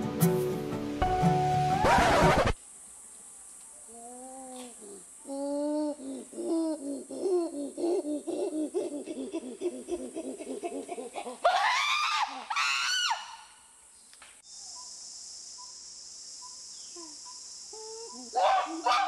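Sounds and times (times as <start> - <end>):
steady hiss: 0.0 - 11.5, 13.5 - 19.0
rapid high-pitched laughter: 7.0 - 11.8
loud shrieking screams: 11.4 - 13.5.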